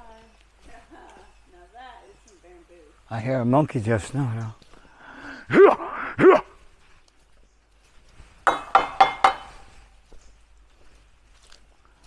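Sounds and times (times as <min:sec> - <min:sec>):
sharp ringing knocks: 0:08.5 - 0:09.8.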